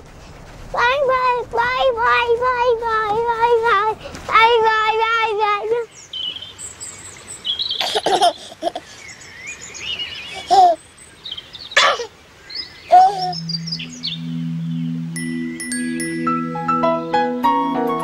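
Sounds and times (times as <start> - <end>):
birds chirping: 1.8 - 17.4
baby giggling: 7.8 - 9.0, 10.3 - 10.8, 11.8 - 12.1, 12.9 - 13.4
soft music with low notes: 13.2 - 18.0.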